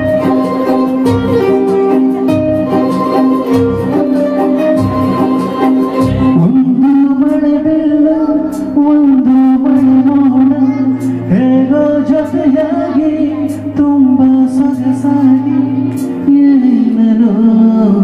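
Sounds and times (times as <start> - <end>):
percussion hits: 0.0 - 6.7
person singing over a backing track: 0.0 - 18.0.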